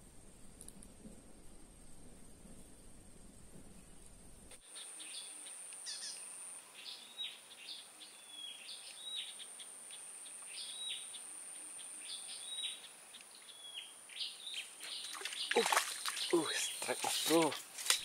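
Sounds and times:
small bird chirping: 4.6s - 18.0s
high-pitched insect whine: 4.7s - 17.4s.

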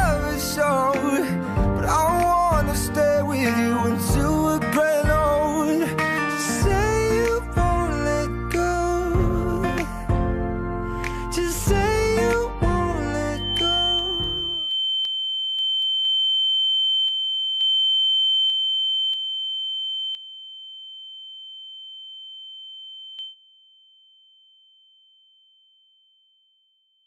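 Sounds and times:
song: 0.0s - 14.7s
high-pitched ringing tone: 11.8s - 27.0s.

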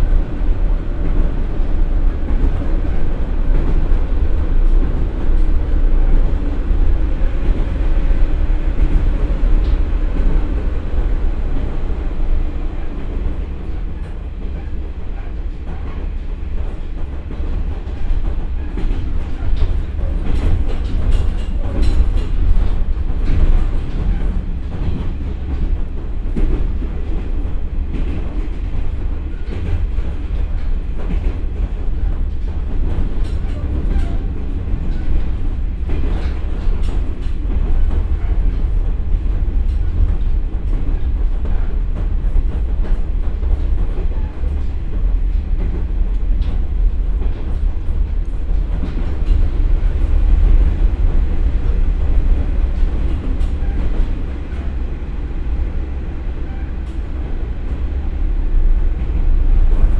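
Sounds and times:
diesel railcar engine rumble: 0.0s - 59.9s
train wheels on rails: 0.0s - 59.9s.

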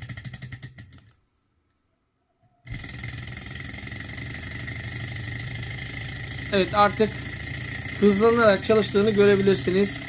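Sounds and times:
stirling engine clattering: 2.7s - 10.0s.

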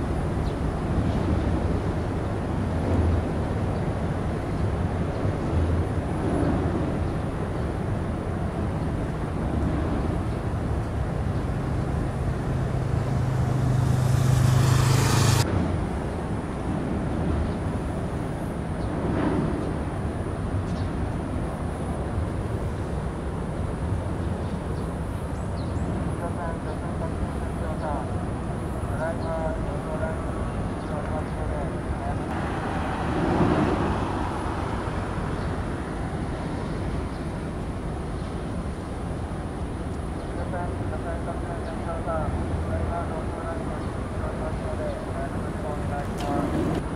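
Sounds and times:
vehicle rumble: 0.0s - 20.2s, 30.4s - 39.7s
low engine drone: 8.4s - 16.2s.

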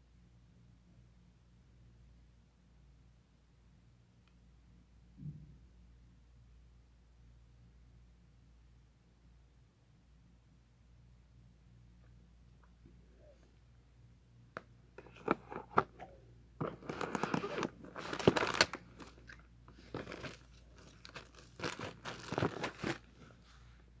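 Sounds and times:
packaging crinkling and rustling: 15.0s - 23.4s.

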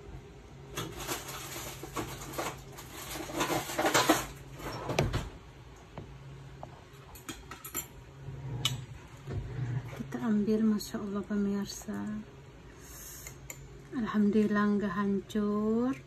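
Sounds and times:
low steady hum: 0.0s - 16.0s
kitchen utensils rustling and clattering: 0.7s - 5.4s, 6.9s - 10.5s.

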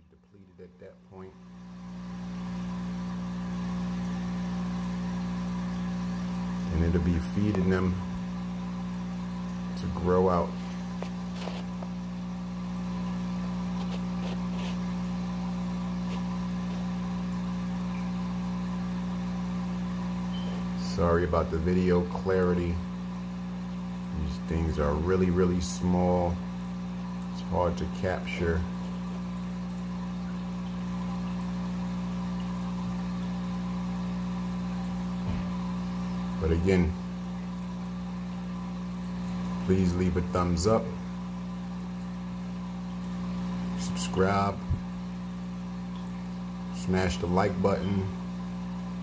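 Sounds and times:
air pump electrical hum: 0.0s - 49.0s.

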